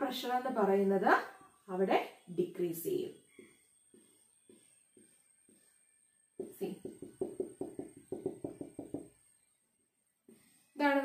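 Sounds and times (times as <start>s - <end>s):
marker strokes on whiteboard: 3.2s - 9.4s, 10.2s - 10.9s
marker tapping dots: 6.4s - 9.3s.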